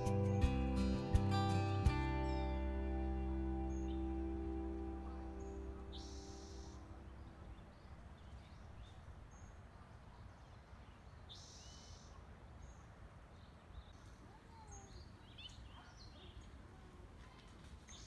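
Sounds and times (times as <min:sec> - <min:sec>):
faint low background noise: 0:00.0 - 0:18.0
bird chirps and calls: 0:03.2 - 0:09.5.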